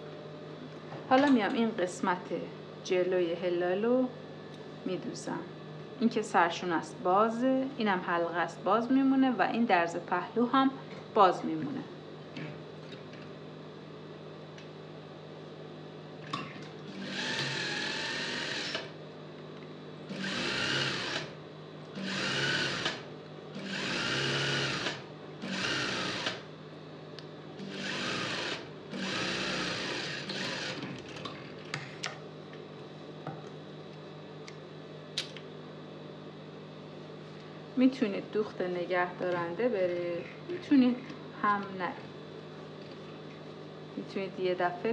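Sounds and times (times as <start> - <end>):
steady low hum: 0.0 - 44.9
sewing machine stitching: 23.6 - 26.4, 27.6 - 31.3.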